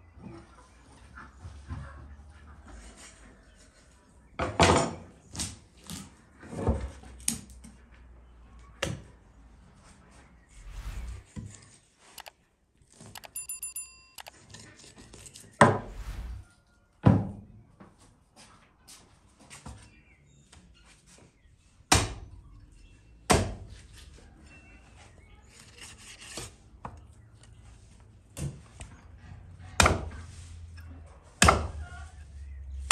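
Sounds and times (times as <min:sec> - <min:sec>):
ringing chime: 0:13.2 - 0:14.4.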